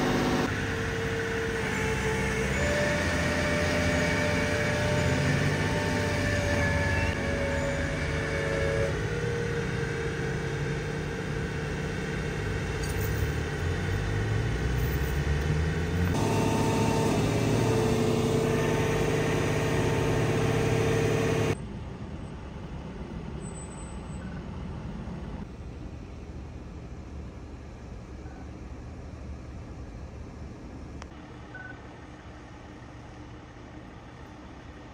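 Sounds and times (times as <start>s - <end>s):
engines idling rumble: 0.0s - 34.9s
steady whine: 5.6s - 21.6s.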